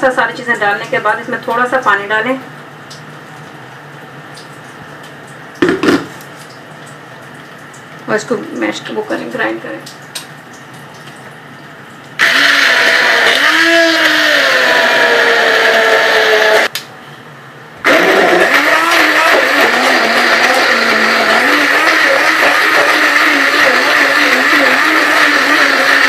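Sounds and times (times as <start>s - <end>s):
electric blender grinding: 12.2s - 16.7s, 17.8s - 26.0s.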